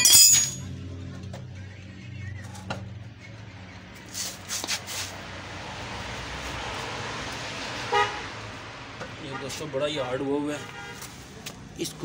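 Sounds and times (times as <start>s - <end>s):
metallic tool clinks: 0.0s - 0.7s.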